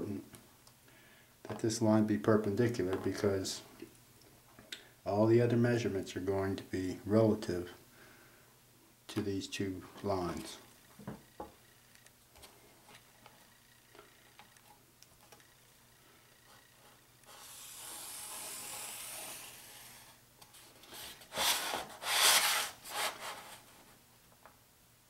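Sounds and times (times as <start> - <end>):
marker pen scratching cardboard: 16.5 - 20.2, 20.9 - 23.6
cardboard scraping and rubbing: 18.0 - 23.7.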